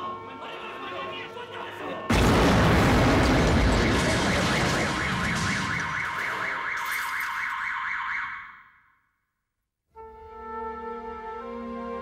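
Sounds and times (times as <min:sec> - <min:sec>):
electronic alarm warbling: 0:03.4 - 0:08.6.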